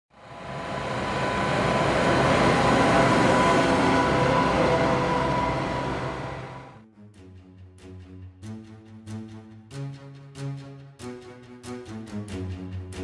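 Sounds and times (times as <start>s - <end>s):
tractor engine hum: 0.2s - 6.8s.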